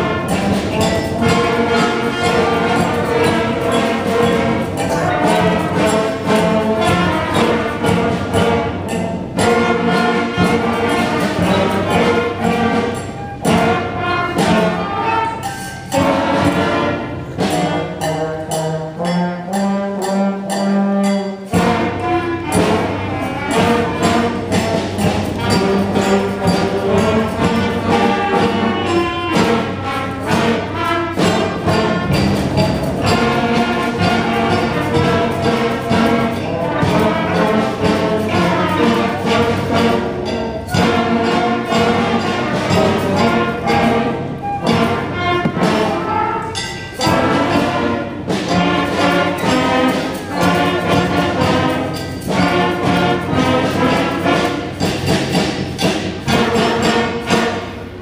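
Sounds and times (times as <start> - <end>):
school band playing: 0.0 - 58.0
trumpets and trombones: 0.0 - 58.0.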